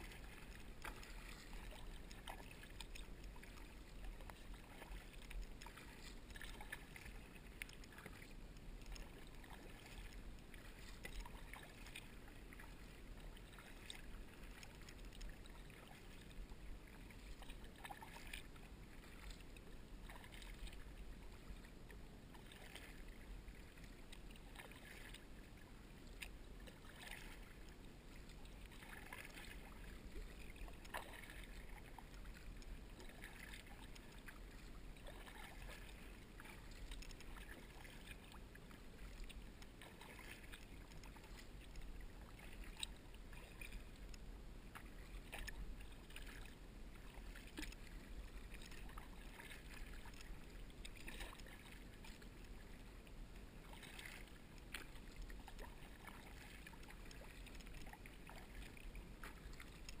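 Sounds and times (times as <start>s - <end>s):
water dripping from paddle: 0.0s - 25.4s, 26.0s - 60.0s
low steady rumble: 0.0s - 60.0s
paddle dipping into water: 0.0s - 60.0s.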